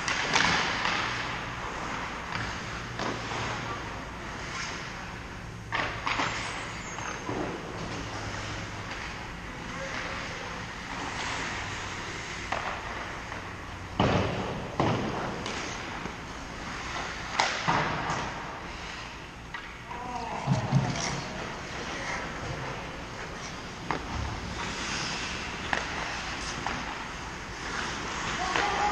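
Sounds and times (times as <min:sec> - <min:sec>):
pucks and sticks knocking: 0:12.3 - 0:18.4.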